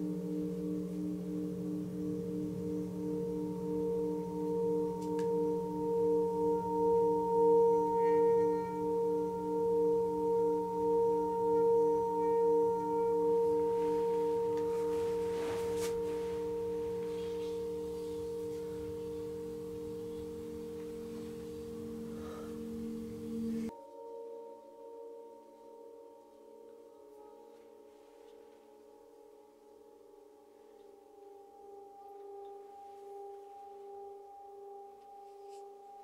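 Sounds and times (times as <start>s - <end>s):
metal singing bowl ringing: 0.0s - 36.0s
soft scraping noise: 13.7s - 18.9s.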